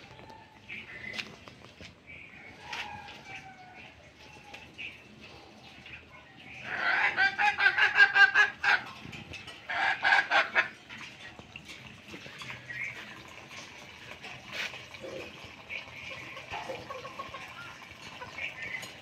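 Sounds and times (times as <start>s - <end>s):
chicken calling loudly: 6.6s - 8.8s.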